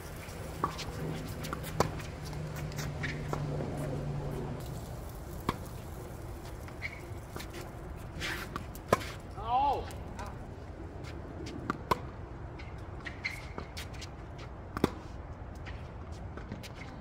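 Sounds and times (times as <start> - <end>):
tennis ball struck by rackets: 0.5 - 4.0, 11.7 - 12.1, 14.7 - 15.1.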